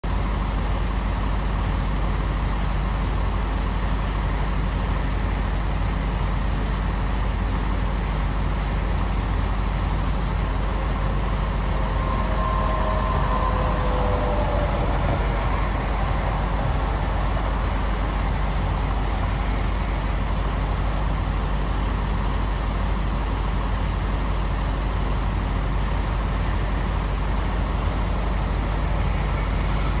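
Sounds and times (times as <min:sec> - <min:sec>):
idling diesel trucks: 0:00.0 - 0:30.0
road traffic: 0:02.0 - 0:30.0
faint brief whine: 0:08.7 - 0:21.2, 0:26.3 - 0:30.0.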